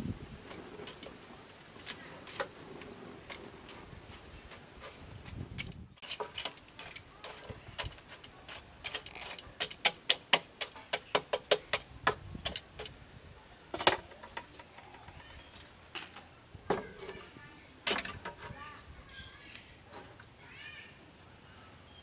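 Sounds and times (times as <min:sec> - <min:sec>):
metal tongs clinking on charcoal: 0:05.6 - 0:11.0.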